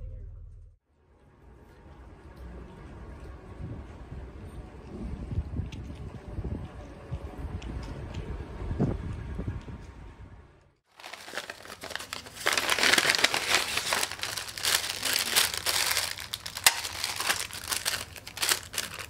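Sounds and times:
wind on microphone: 0:03.6 - 0:10.3
paper crinkling and rustling: 0:10.9 - 0:19.0.

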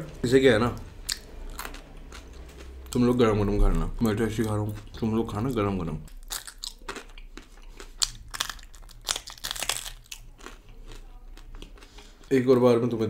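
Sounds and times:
crisp chewing crunches: 0:04.0 - 0:12.6.

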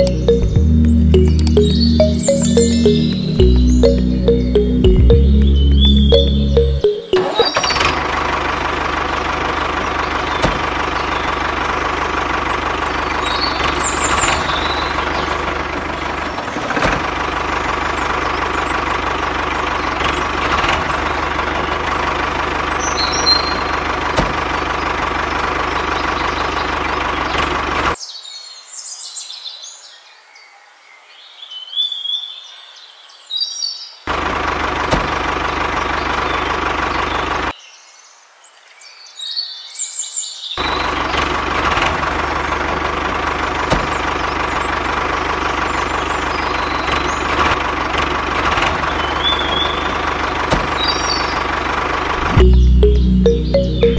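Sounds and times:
birds chirping: 0:00.0 - 0:07.8
tractor engine running: 0:00.0 - 0:28.0, 0:34.1 - 0:37.5, 0:40.6 - 0:53.9.

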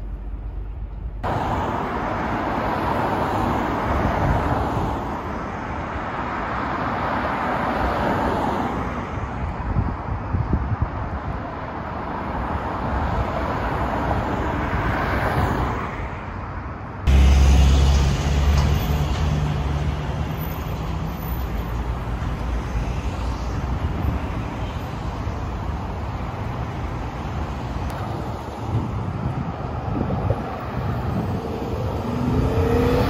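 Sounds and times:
general traffic noise: 0:00.0 - 0:33.0
car passing by: 0:01.2 - 0:09.4, 0:17.0 - 0:33.0.

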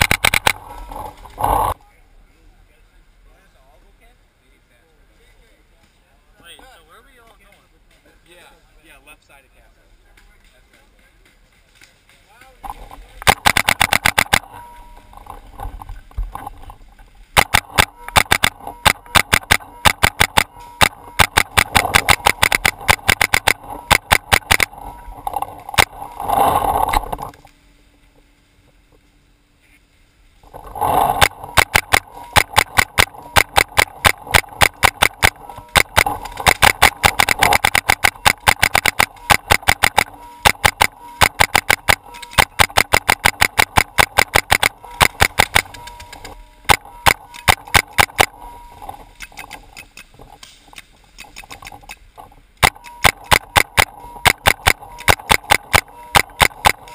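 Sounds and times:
paintball markers firing: 0:00.0 - 0:01.8, 0:13.2 - 0:14.6, 0:17.4 - 0:24.8, 0:30.9 - 0:48.4, 0:52.6 - 0:56.9.

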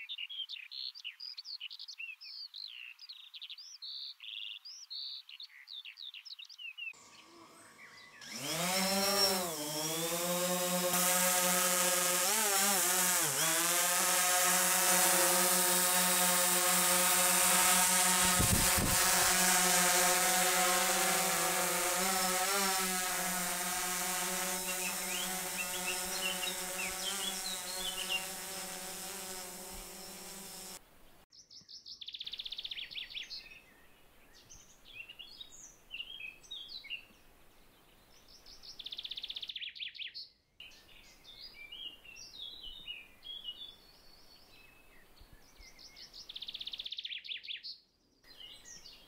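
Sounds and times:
small birds chirping: 0:00.0 - 0:49.0
drone propellers buzzing: 0:07.0 - 0:30.8.

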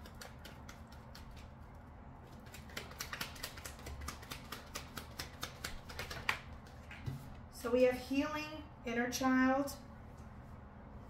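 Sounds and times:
cards being shuffled: 0:02.4 - 0:07.0.

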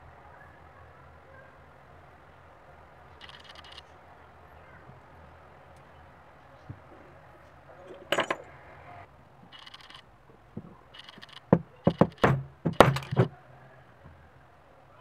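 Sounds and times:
hammer tapping metal setting tool: 0:07.8 - 0:08.6, 0:11.4 - 0:13.3
handling clicks: 0:10.9 - 0:13.3.

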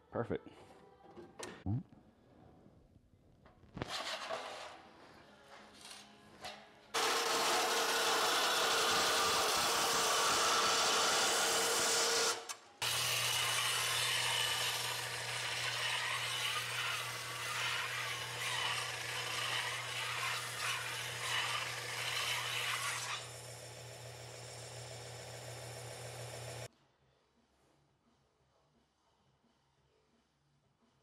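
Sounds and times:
belt sander grinding metal: 0:07.0 - 0:26.7
motor hum: 0:20.9 - 0:26.7.

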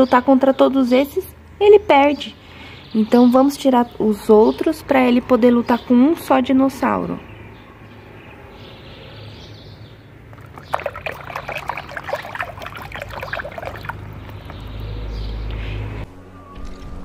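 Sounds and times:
water splashing in plastic tub: 0:10.3 - 0:15.2.

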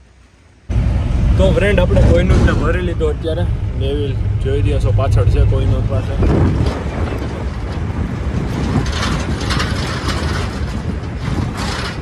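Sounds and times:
steady low rumble: 0:00.0 - 0:12.0
metal clattering and knocking: 0:05.6 - 0:12.0.

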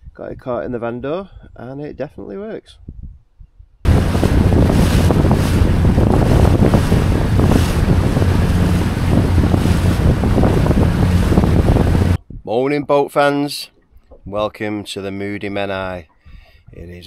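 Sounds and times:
wind buffeting microphone: 0:02.8 - 0:12.5
outboard engine humming: 0:03.9 - 0:12.2
water rushing behind boat: 0:03.9 - 0:12.2.

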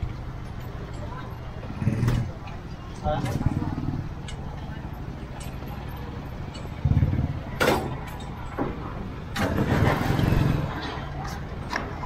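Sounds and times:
vehicle engine revving: 0:01.6 - 0:02.4, 0:06.8 - 0:07.6, 0:09.4 - 0:10.9.

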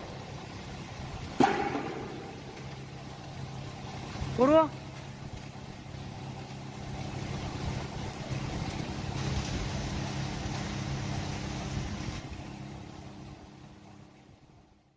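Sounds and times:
motor hum: 0:00.0 - 0:14.9.

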